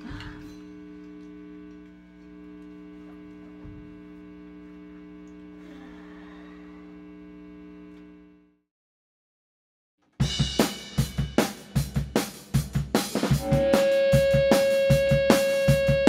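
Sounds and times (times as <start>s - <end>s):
electrical mains hum: 0.0s - 8.6s.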